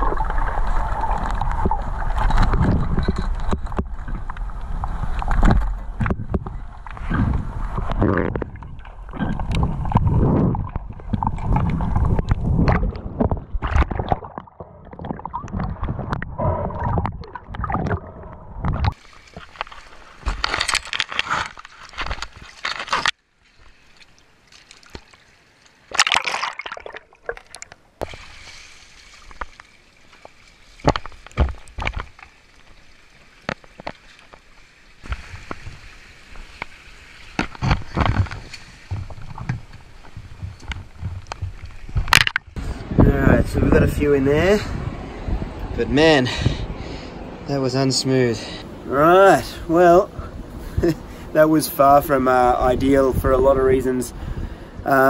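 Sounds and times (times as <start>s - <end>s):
water sloshing and splashing: 0.0s - 42.8s.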